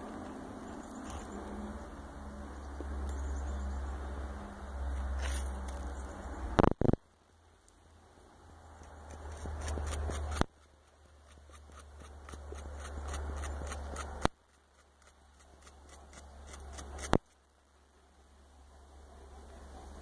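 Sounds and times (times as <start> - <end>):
beaver gnawing wood: 8.7 - 17.4.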